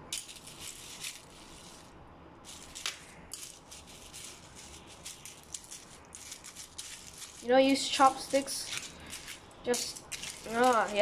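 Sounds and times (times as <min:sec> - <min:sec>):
crackly rustling of cereal flakes: 0:00.2 - 0:11.0.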